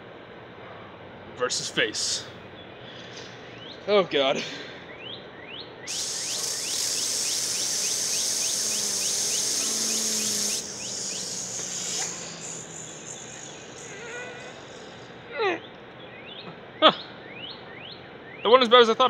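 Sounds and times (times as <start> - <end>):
hose water jet hissing: 5.9 - 15.1
fidget spinner whirring: 5.9 - 15.2.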